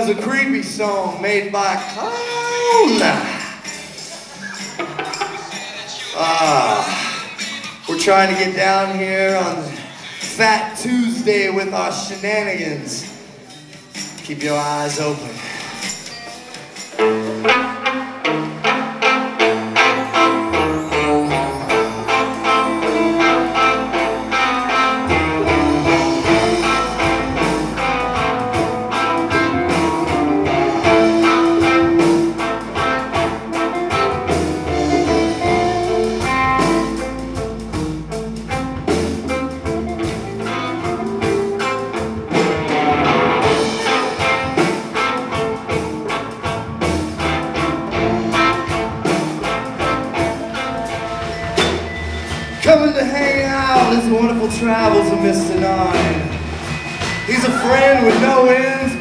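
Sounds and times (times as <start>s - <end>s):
live band instrumental: 0.0s - 59.0s
electric guitar leading: 16.9s - 59.0s.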